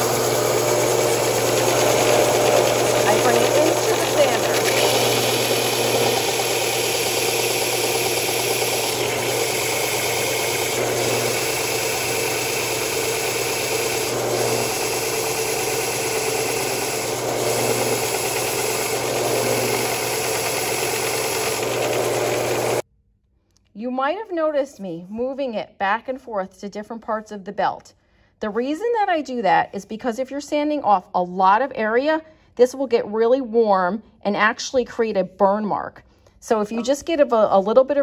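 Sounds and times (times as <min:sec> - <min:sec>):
belt sander sanding wood: 0:00.0 - 0:22.8.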